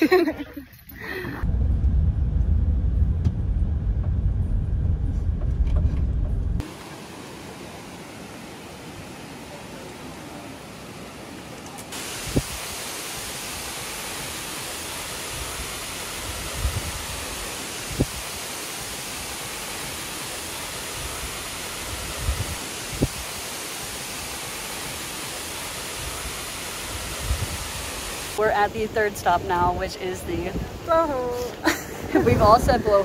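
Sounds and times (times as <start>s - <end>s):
low thuds: 1.4s - 6.6s
water rushing: 6.6s - 33.0s.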